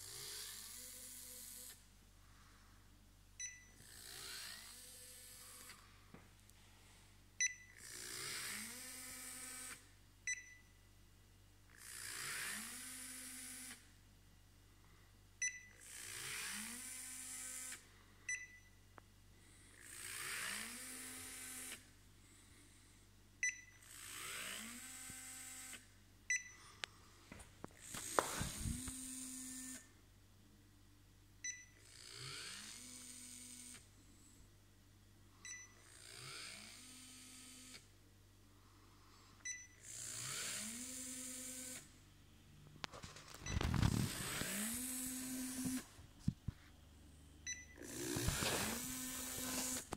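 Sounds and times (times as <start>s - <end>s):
gearmotor whining: 3.8s - 5.8s, 27.8s - 29.8s, 43.4s - 45.9s, 47.8s - 49.9s.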